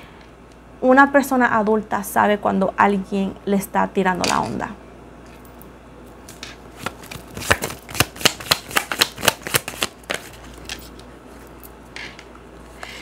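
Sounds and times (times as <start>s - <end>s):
cards being shuffled: 6.2s - 11.1s.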